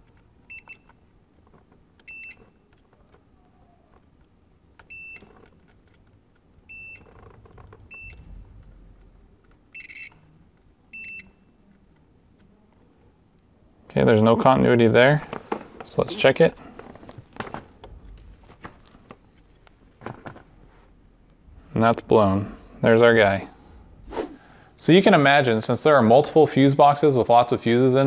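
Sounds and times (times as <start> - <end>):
short high multimeter beeps: 6.7 - 7.1, 7.9 - 8.3, 9.7 - 10.2, 10.9 - 11.5.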